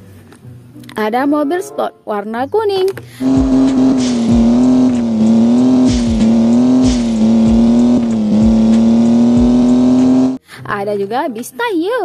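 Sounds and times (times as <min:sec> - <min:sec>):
toy car electronic engine buzz: 0:03.2 - 0:10.4.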